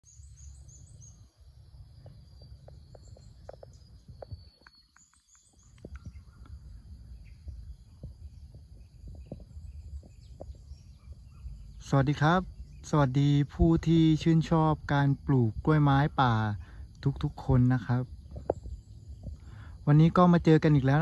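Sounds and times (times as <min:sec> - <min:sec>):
bird chirps: 0:00.0 - 0:21.0
high insect drone: 0:00.1 - 0:21.0
scattered ticks: 0:02.0 - 0:06.6
low rumble: 0:05.8 - 0:20.3.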